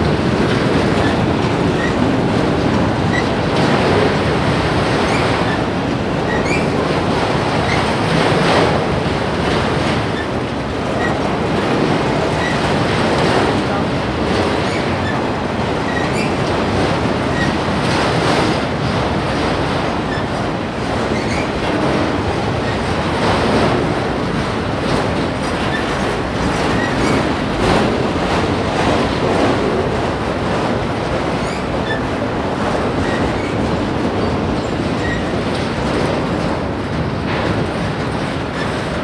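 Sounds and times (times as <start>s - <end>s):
train wheels rumbling on rail: 0.0s - 39.0s
wheel squeaks on rail: 1.0s - 2.1s, 3.1s - 3.8s, 5.0s - 5.7s, 6.3s - 6.8s, 11.0s - 13.8s, 14.6s - 16.5s, 17.2s - 17.6s, 20.0s - 20.4s, 21.1s - 21.6s, 26.6s - 27.3s, 31.4s - 32.1s, 33.0s - 33.6s, 34.2s - 35.7s.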